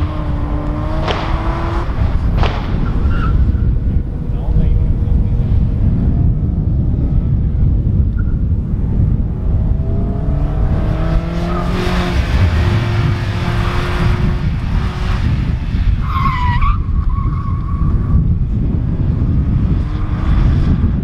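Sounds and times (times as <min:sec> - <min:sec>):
car engine revving: 0:00.0 - 0:06.5, 0:08.8 - 0:16.1.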